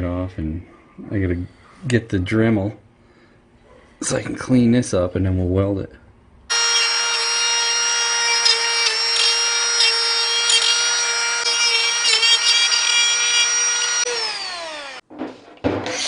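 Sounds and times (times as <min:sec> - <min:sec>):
grinder whining on steel: 0:06.5 - 0:15.0.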